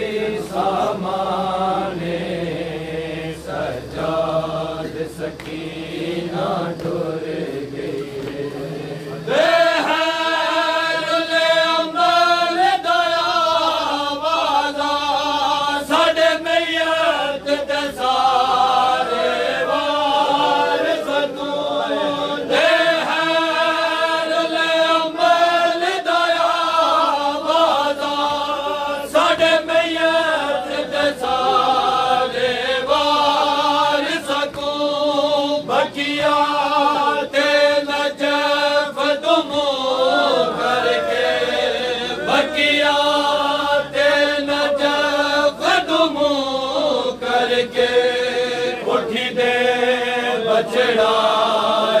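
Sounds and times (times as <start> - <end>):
men singing a mournful lament: 0.0 - 52.0.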